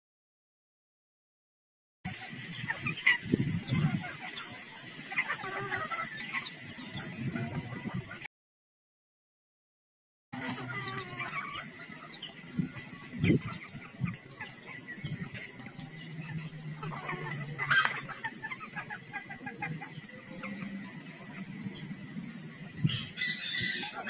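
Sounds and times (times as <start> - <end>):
chickens clucking: 2.1 - 8.3, 10.4 - 24.0
chicks chirping and peeping: 2.1 - 8.3, 10.4 - 24.0
chicken squawk: 5.1 - 6.5, 16.8 - 20.6, 22.9 - 24.0.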